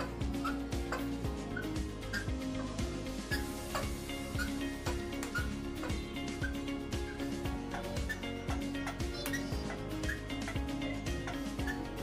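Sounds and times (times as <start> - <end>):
background music with steady beat: 0.0 - 12.0.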